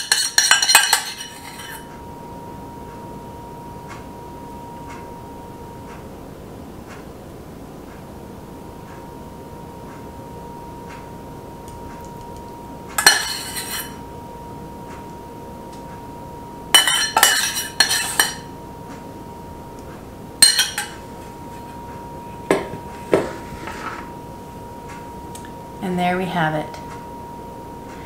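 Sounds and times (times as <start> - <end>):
metal spoon scraping a saucepan: 0.0 - 1.9, 13.0 - 14.0, 16.8 - 18.4.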